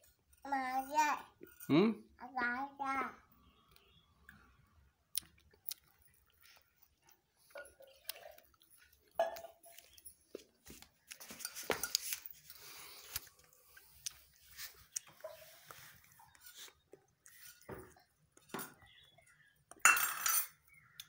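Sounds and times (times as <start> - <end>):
chewing: 5.1 - 10.1.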